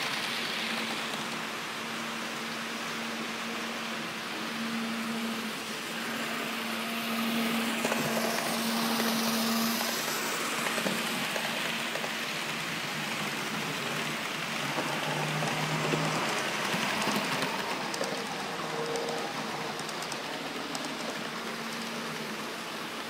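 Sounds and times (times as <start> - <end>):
model train motor hum: 0.0 - 23.0
wheels ticking on rails: 6.4 - 23.0.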